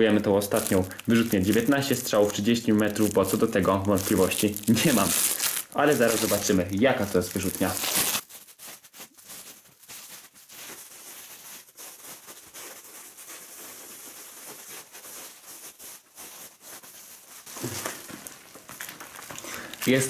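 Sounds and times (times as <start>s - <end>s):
plastic stretch wrap crinkling: 0.0s - 20.0s.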